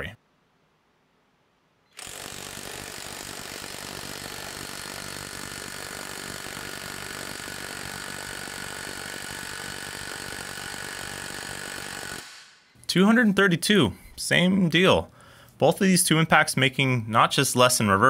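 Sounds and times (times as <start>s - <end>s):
impact wrench hammering: 2.0s - 12.7s.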